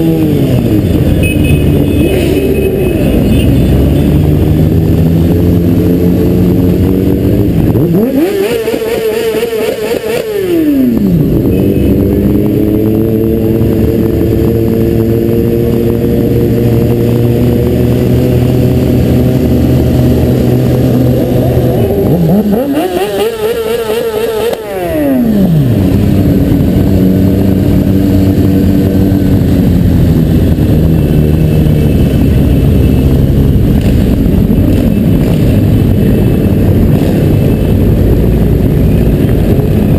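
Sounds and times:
motorcycle engine revving: 0.0 - 39.9
motorcycle engines running slowly: 0.0 - 39.9.

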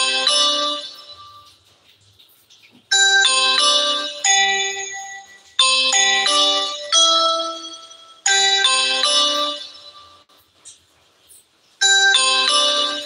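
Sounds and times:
electronic chime tune: 2.9 - 10.2.

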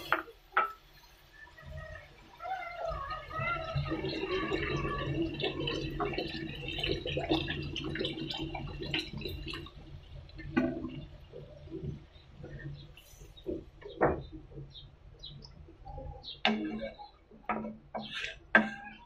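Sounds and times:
water splashing into a wok: 2.3 - 12.5.

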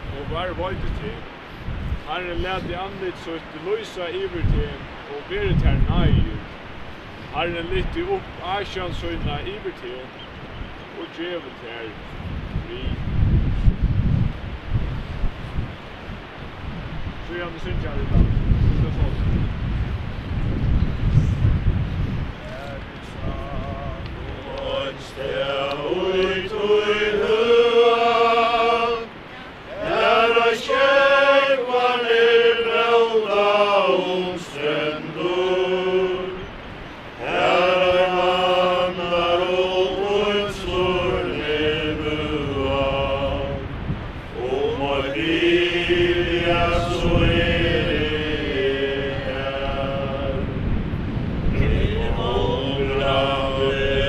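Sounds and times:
group singing a slow hymn: 23.0 - 54.0.

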